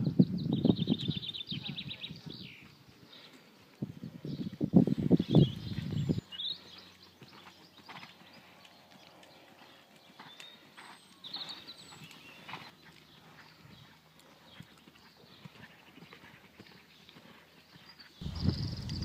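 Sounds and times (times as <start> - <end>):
horse hoofbeats cantering: 6.6 - 19.0.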